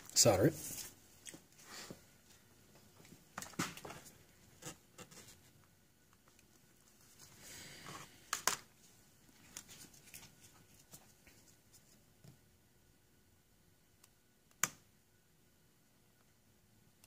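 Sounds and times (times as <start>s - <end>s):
rustle of handling: 8.8s - 12.0s.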